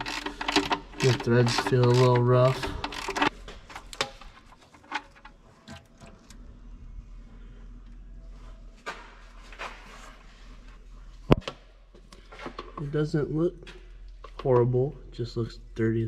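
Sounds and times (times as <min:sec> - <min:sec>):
clicks and knocks of tools: 0:00.0 - 0:06.4.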